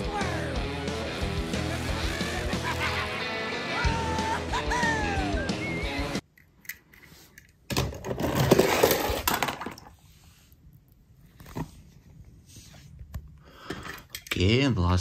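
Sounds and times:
toy car rattling down plastic ramp: 0:07.8 - 0:09.8.

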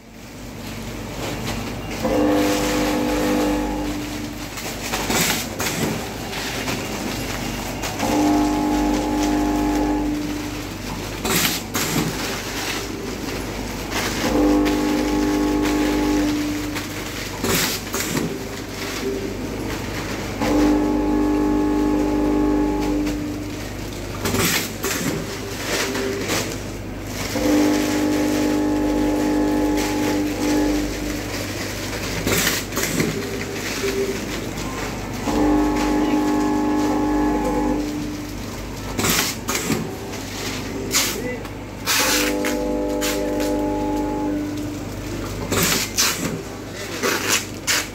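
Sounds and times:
packaging machine running: 0:00.0 - 0:47.9
steady horn-like tone: 0:01.8 - 0:05.4, 0:07.7 - 0:11.4, 0:14.1 - 0:17.0, 0:20.4 - 0:23.7, 0:27.3 - 0:32.7, 0:35.2 - 0:38.5, 0:41.8 - 0:44.9.

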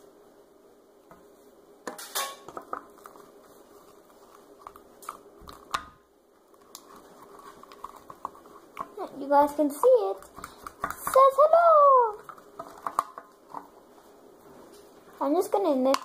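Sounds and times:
stick scraping plastic cup: 0:06.6 - 0:11.4.

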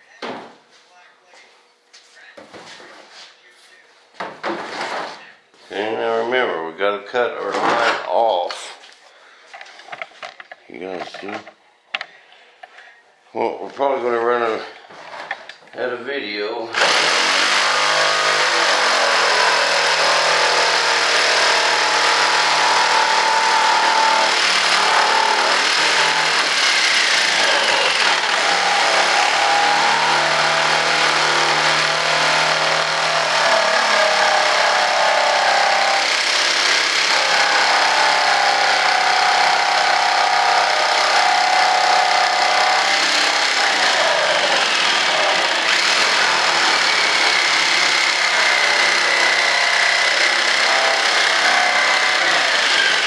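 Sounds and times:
electric jigsaw cutting: 0:16.7 - 0:53.0.

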